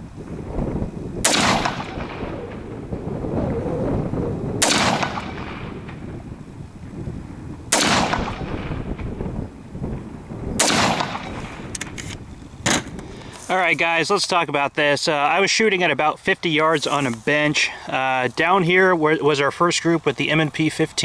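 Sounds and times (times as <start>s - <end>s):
rifle shots with echo: 1.2s - 2.8s, 4.6s - 6.1s, 7.7s - 9.0s, 10.6s - 11.9s.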